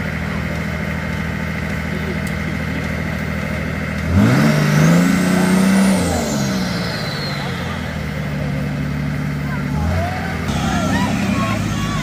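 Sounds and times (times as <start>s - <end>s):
truck engine revving: 0.0s - 12.0s
high whine: 10.5s - 12.0s.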